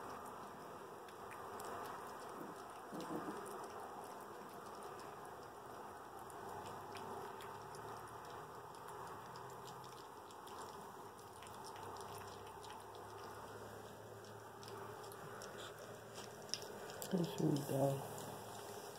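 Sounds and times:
puppies chewing food: 0:00.0 - 0:18.9.

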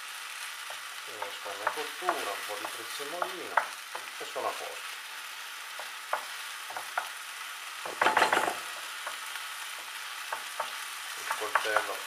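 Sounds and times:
rice sizzling in a frying pan: 0:00.0 - 0:12.0
spoon scraping a pan: 0:07.8 - 0:12.0
loud knocks: 0:07.9 - 0:08.7.

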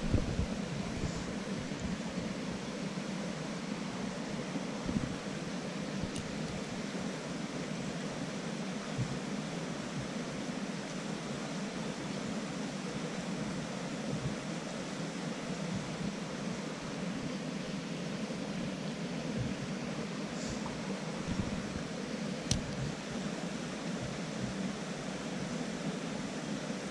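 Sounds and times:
creek water rushing: 0:00.0 - 0:26.9.

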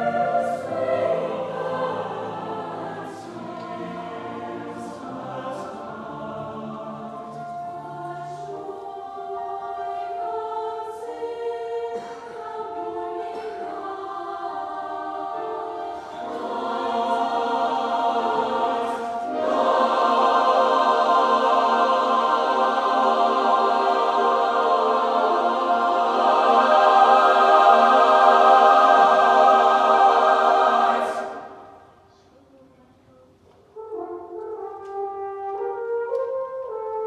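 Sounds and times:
choir singing held chords: 0:00.0 - 0:32.1.

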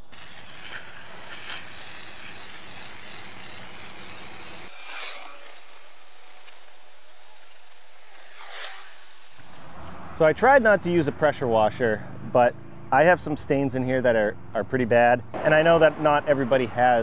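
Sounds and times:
hose spray hissing on concrete: 0:00.0 - 0:10.0.

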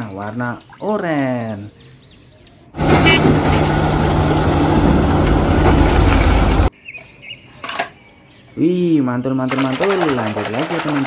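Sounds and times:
excavator engine running: 0:02.8 - 0:06.7.

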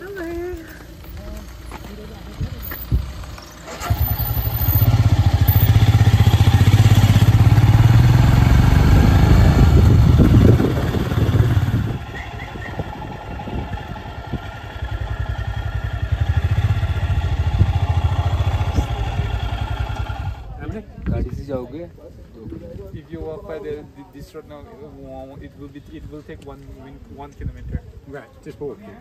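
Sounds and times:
motorbike engine running: 0:00.0 - 0:20.6.

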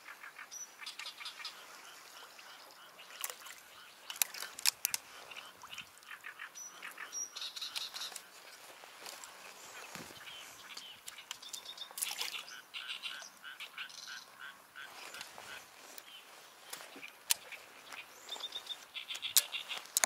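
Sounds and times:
small birds chirping: 0:00.0 - 0:20.0
sharp clicks: 0:04.0 - 0:05.0, 0:16.7 - 0:17.6.

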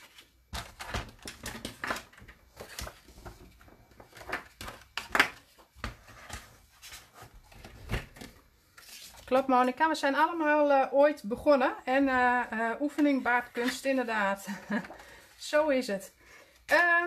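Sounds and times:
plastic board taps and clatters: 0:00.5 - 0:06.5.

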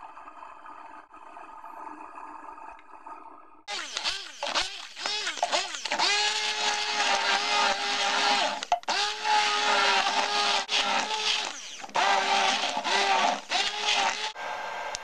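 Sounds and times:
soup churning: 0:03.7 - 0:14.4
hand blender motor whine: 0:03.7 - 0:15.0.

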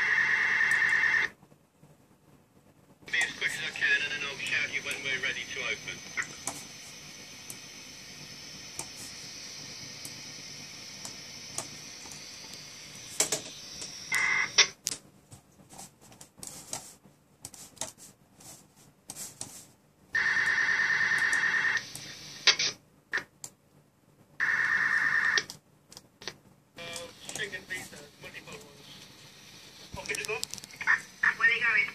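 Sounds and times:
receiver noise hiss: 0:00.0 - 0:31.9
scattered clicks: 0:03.1 - 0:03.7, 0:04.8 - 0:05.1, 0:20.4 - 0:22.6, 0:25.4 - 0:27.6, 0:30.0 - 0:30.8.

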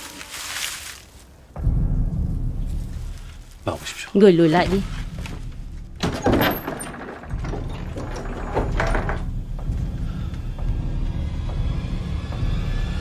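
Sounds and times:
low steady rumble: 0:01.6 - 0:13.0
wooden knocks and scraping: 0:04.6 - 0:13.0.

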